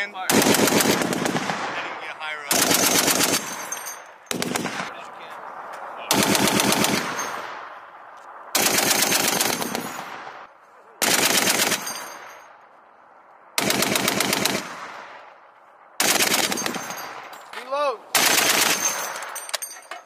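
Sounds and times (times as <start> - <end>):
rolling gunfire echo: 0.2 - 12.6, 13.6 - 17.4, 18.1 - 19.6
heavy machine gun bursts: 18.2 - 19.3.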